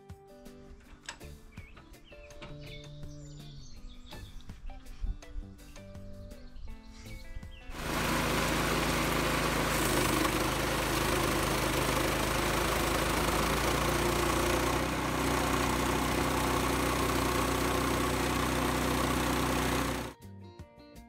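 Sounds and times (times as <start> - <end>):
band sawmill running under load: 7.8 - 20.2.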